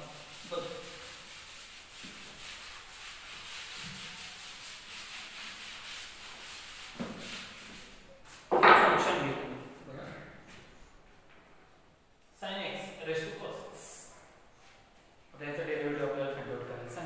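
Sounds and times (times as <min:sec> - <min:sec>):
duster scrubbing blackboard: 0:00.0 - 0:08.5.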